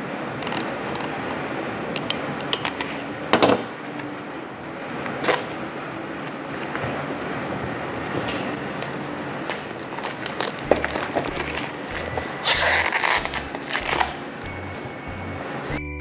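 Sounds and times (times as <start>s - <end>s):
packaging clicks and scrapes: 6.2s - 14.2s
box cutter slitting cardboard: 10.0s - 14.2s.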